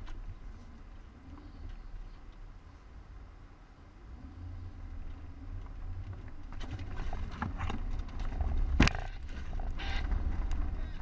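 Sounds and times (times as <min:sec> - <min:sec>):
engine rumbling low: 0:00.0 - 0:11.0.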